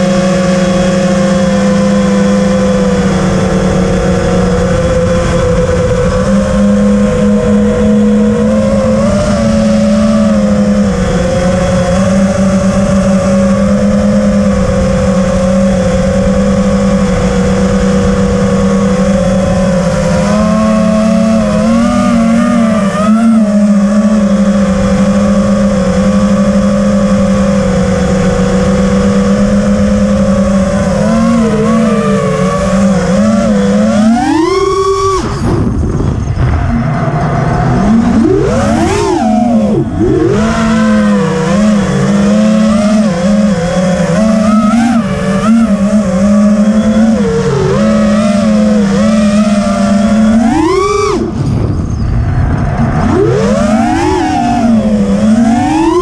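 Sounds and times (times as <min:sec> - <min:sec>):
quadcopter motors whining: 0:00.0 - 0:56.0.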